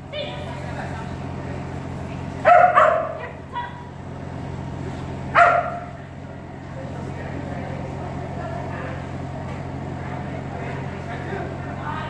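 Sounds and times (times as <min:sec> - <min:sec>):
steady low hum: 0:00.0 - 0:12.0
dog barking: 0:02.4 - 0:03.8, 0:05.3 - 0:06.0.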